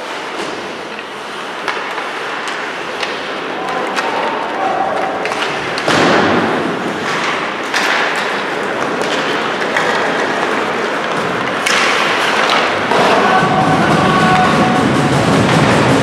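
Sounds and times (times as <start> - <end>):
skates scraping ice: 0.0 - 16.0
sticks and puck knocking: 0.3 - 16.0.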